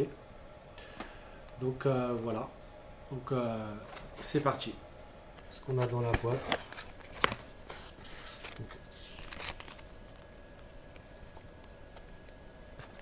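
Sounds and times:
cardboard box and paper rustling: 5.9 - 10.4.

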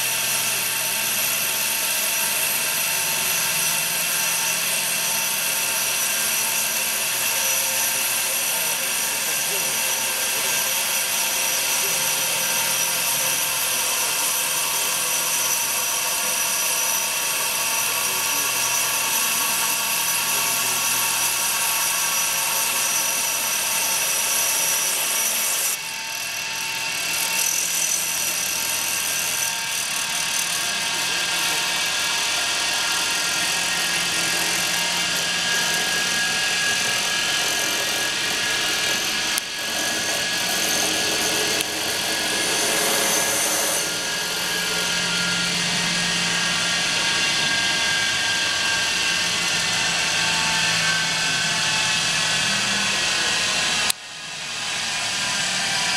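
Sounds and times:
cutting machine whine with hiss: 0.0 - 55.9.

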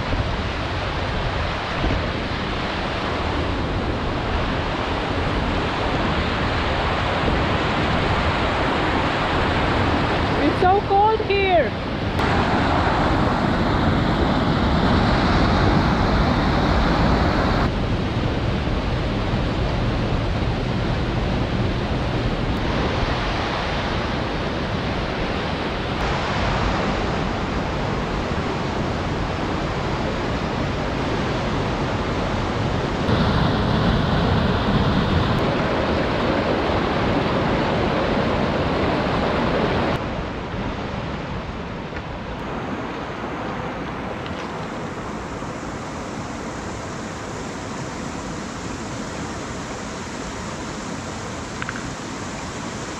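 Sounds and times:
river water rushing over rocks: 0.1 - 17.7, 25.4 - 40.2.

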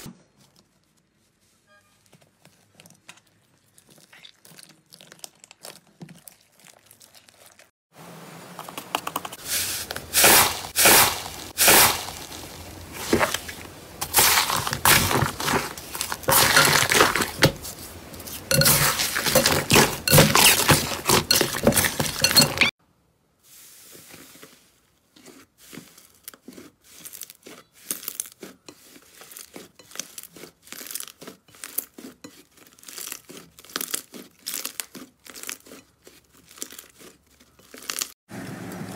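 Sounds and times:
slime crackling and popping: 26.1 - 38.1.

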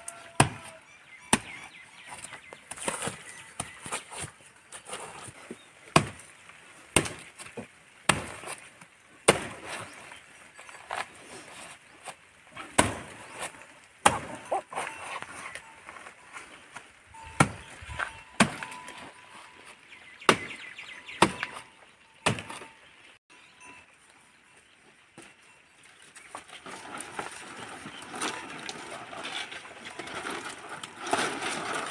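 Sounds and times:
machete chopping palm: 5.9 - 6.2, 7.0 - 8.6, 9.2 - 9.7, 12.7 - 13.2, 14.0 - 14.4, 21.2 - 21.6, 22.2 - 22.7.

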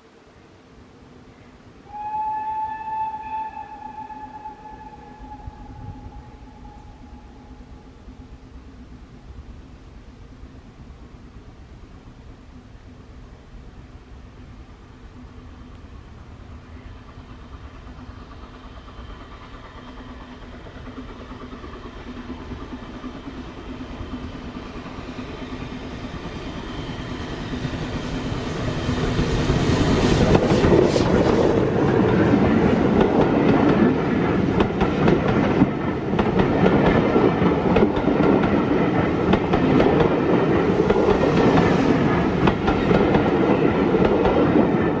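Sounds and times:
steam train passing: 0.0 - 45.0
wheels clicking over rail joints: 30.2 - 45.0.

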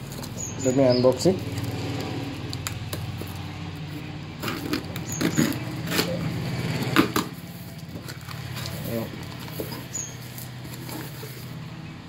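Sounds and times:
tape and cardboard rustling: 0.0 - 11.6
scissors cutting packing tape: 1.2 - 3.5, 4.4 - 6.4.

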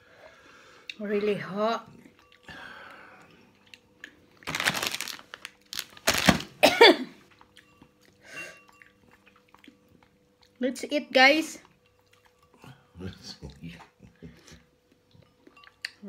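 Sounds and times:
woman coughing: 6.6 - 7.2.

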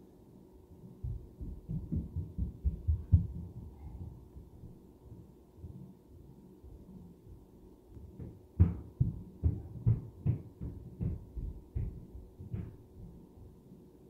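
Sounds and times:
heavy thuds through ceiling: 1.0 - 5.8, 7.9 - 13.3.

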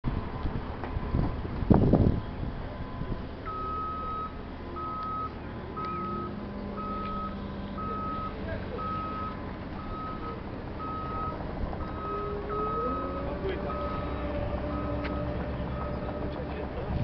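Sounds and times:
engine humming: 0.0 - 17.0
reversing alarm beeps: 3.5 - 16.4.

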